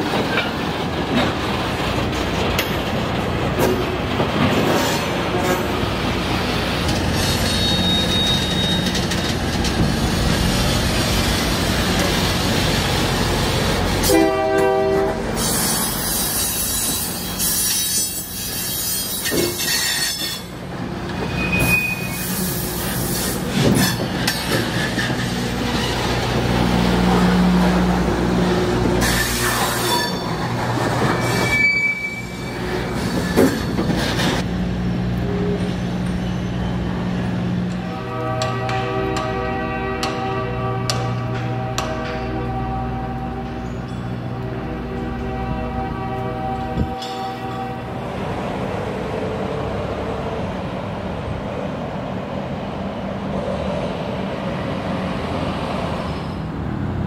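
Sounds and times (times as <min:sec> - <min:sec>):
steel wheels squealing on rails: 0:04.4 - 0:12.7, 0:13.9 - 0:26.4, 0:28.9 - 0:34.5, 0:35.2 - 0:39.4, 0:40.9 - 0:45.0, 0:55.9 - 0:56.6
train horn blast: 0:14.0 - 0:15.5, 0:37.8 - 0:48.0.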